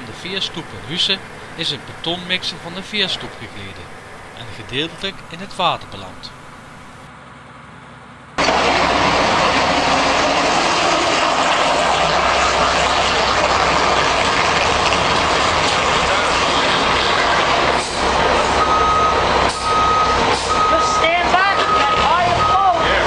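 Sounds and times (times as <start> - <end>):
concrete mixer truck running: 0.0 - 23.0
reversing beeper: 12.2 - 13.7, 17.9 - 23.0.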